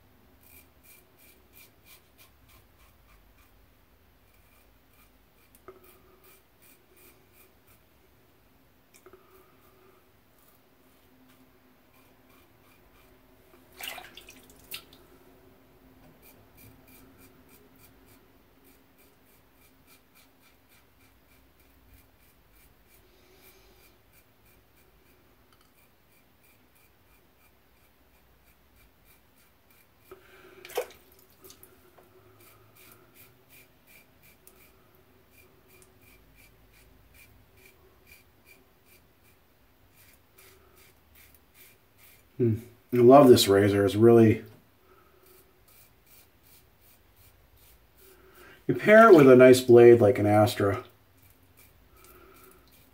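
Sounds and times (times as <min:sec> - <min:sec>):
razor scraping through stubble: 0:11.9 - 0:13.2, 0:32.4 - 0:44.3, 0:45.2 - 0:52.9.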